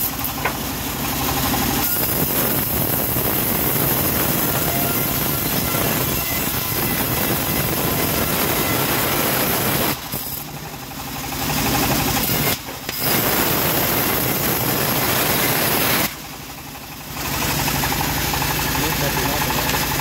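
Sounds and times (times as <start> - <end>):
bandsaw blade sawing wood: 0.0 - 0.6, 1.4 - 10.6, 11.6 - 16.2
sawmill machine running hum: 0.0 - 20.0.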